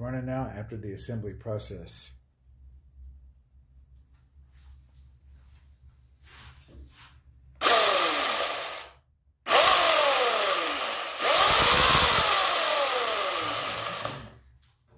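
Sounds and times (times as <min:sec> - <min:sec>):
electric chainsaw running: 0:07.6 - 0:14.4.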